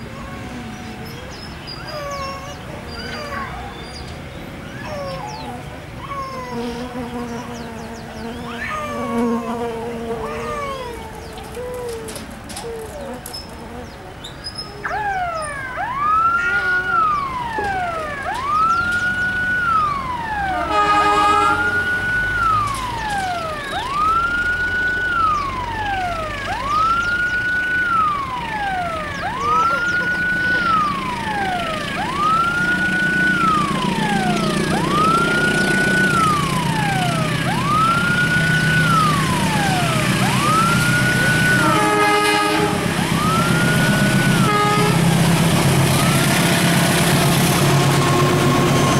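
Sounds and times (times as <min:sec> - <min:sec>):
locomotive engine rumble: 0:08.0 - 0:48.9
electronic siren wailing: 0:08.4 - 0:12.2, 0:14.7 - 0:48.9
locomotive horn blasts: 0:20.5 - 0:22.1, 0:41.4 - 0:43.2, 0:43.9 - 0:48.9.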